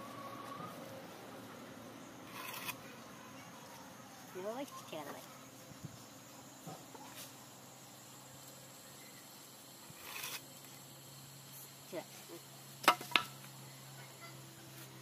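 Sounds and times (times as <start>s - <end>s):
wooden planks knocking: 12.8s - 13.3s.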